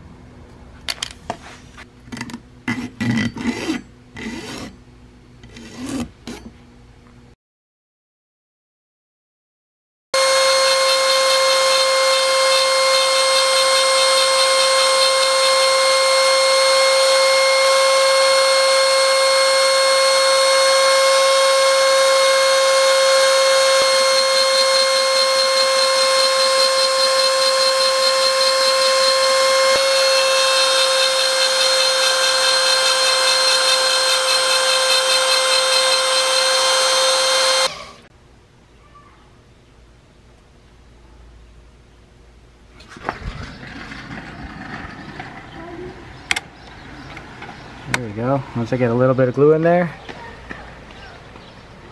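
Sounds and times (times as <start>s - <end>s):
router spindle high whine: 10.2s - 38.1s.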